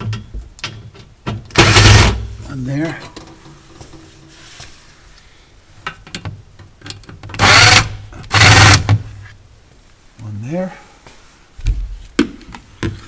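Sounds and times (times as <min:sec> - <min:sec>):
cordless drill driving screw: 0:01.6 - 0:02.2, 0:07.4 - 0:08.9.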